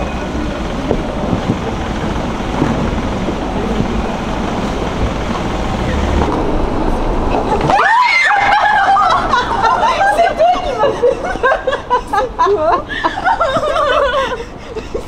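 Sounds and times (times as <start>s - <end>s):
street traffic noise: 0.0s - 15.0s
woman screaming: 7.7s - 10.9s.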